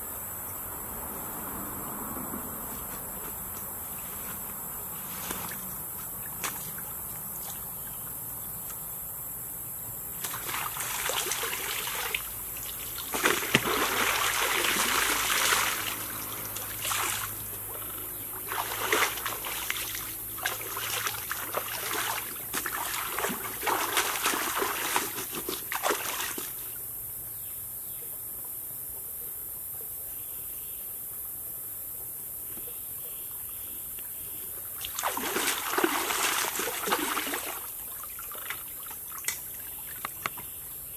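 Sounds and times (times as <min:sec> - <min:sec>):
water splashing and sloshing: 0:02.3 - 0:08.2, 0:10.1 - 0:26.8, 0:34.6 - 0:40.6.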